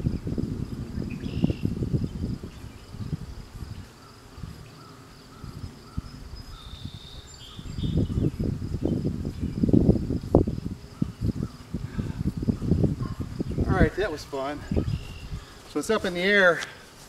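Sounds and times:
low rumbling buffets: 0:00.0 - 0:16.9
insects droning: 0:00.0 - 0:17.0.

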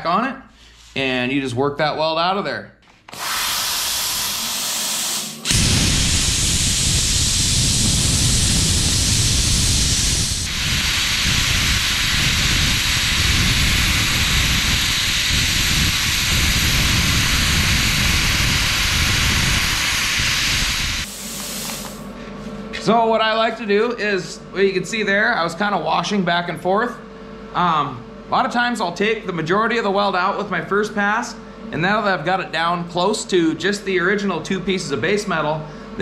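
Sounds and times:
plasma cutter arc hissing: 0:03.2 - 0:22.1
air hiss: 0:03.2 - 0:22.2.

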